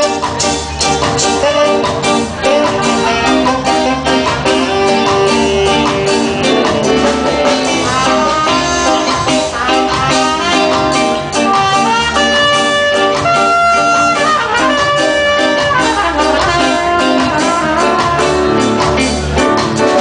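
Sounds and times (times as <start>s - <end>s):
drums: 0.0s - 20.0s
electric guitars: 0.0s - 20.0s
reggae band playing: 0.0s - 20.0s.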